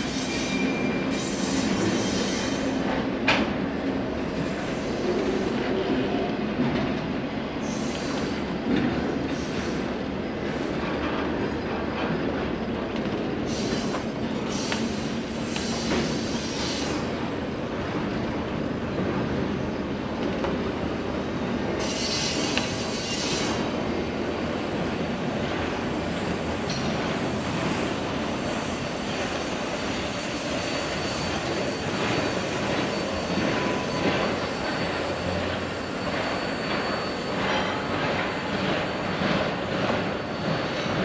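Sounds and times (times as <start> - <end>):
high wheel squeal: 0.0 - 2.8, 27.8 - 41.0
train wheels rumbling on rail: 0.0 - 41.0.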